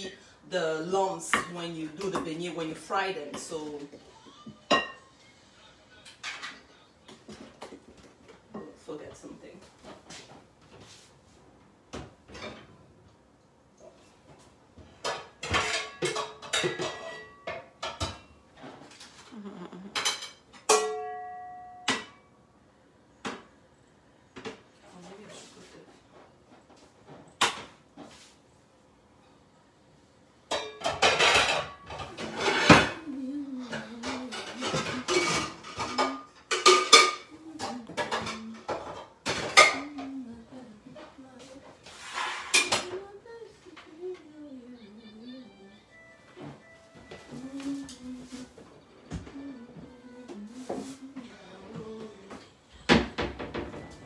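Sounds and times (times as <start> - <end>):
kitchenware knocks and clinks: 4.5 - 5.1, 14.9 - 18.8, 19.9 - 22.2, 30.5 - 33.0, 33.7 - 40.2, 52.8 - 54.0
ringing metal clang: 20.7 - 22.3.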